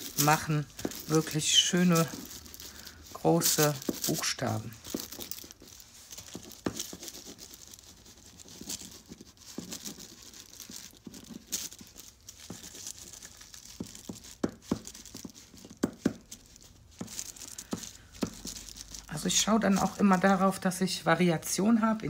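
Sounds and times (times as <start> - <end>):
paint stick scraping on paper: 0.0 - 20.6
paper crinkling: 0.0 - 22.0.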